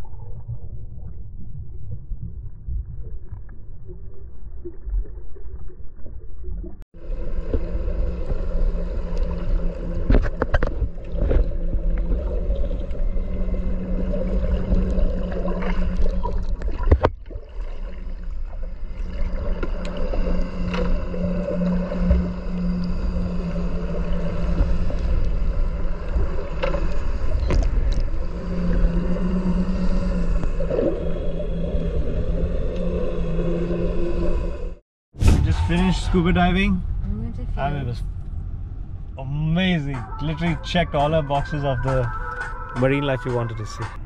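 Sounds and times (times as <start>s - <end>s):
boat engine humming: 7.0s - 34.8s, 35.5s - 44.0s
muffled low rumble: 35.2s - 42.1s.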